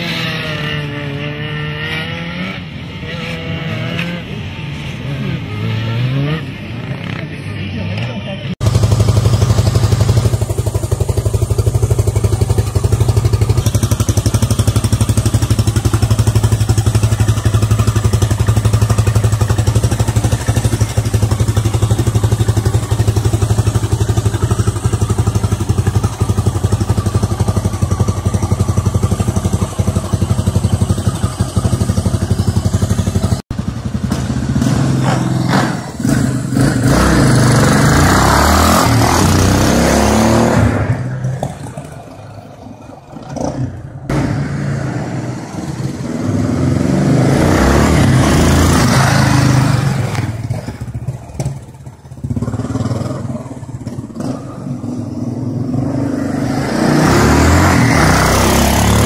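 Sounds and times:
motorcycle revving and riding off: 0:00.0 - 0:59.0
motorcycle engine idling: 0:08.6 - 0:34.6, 0:50.3 - 0:55.4.

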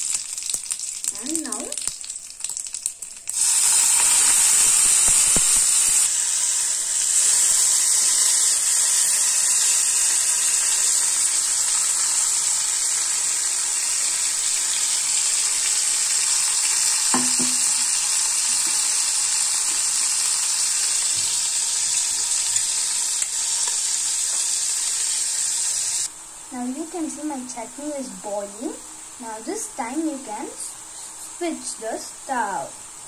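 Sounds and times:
chutney sizzling in hot oil: 0:00.0 - 0:33.0
short knock: 0:17.2 - 0:17.7.

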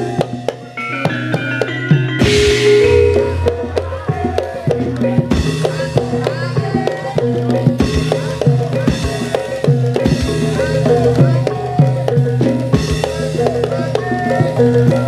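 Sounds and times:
drums beating a driving rhythm: 0:00.0 - 0:15.0
ringing gamelan tones: 0:00.0 - 0:15.0.

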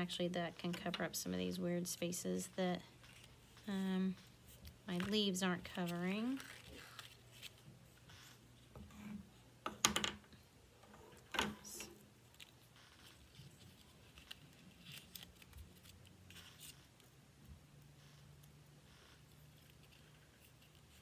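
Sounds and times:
paper rustling: 0:04.6 - 0:08.0, 0:12.3 - 0:16.8.

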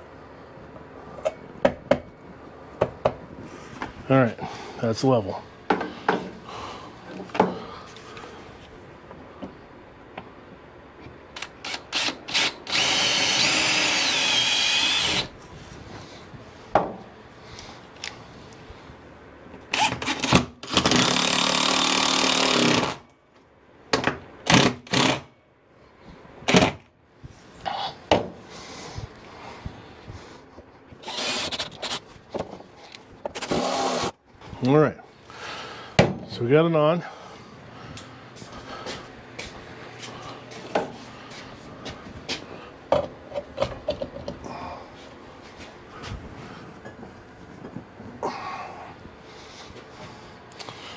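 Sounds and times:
cordless drill driving screws: 0:11.4 - 0:15.3, 0:19.7 - 0:23.0, 0:24.5 - 0:25.2, 0:31.0 - 0:32.0, 0:33.4 - 0:34.1.

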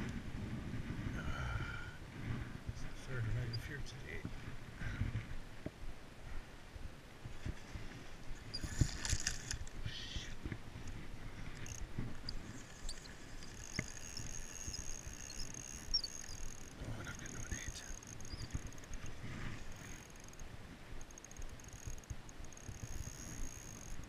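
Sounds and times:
thin high whine: 0:11.4 - 0:20.4.

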